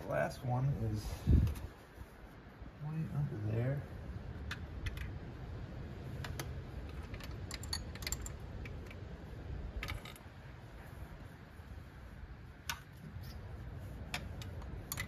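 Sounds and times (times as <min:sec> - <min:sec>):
wrench clicking on metal: 0:06.2 - 0:09.0, 0:14.2 - 0:15.0.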